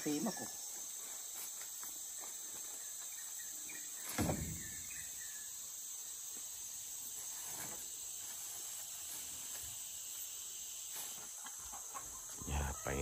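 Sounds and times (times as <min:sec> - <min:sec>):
insect chorus: 0:00.0 - 0:13.0
dull thump: 0:04.1 - 0:04.8.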